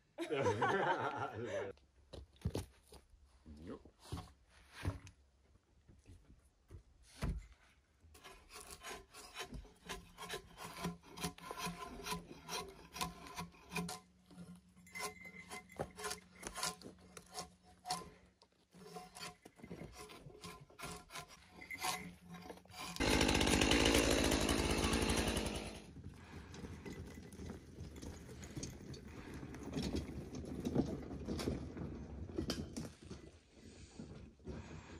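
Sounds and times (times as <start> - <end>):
hand tools sawing a log: 8.1 - 26.0.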